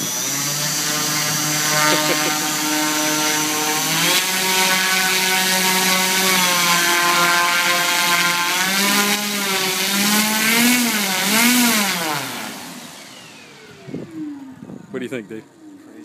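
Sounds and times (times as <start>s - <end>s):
electric motor whine: 0.0s - 14.9s
propeller drone: 0.0s - 16.0s.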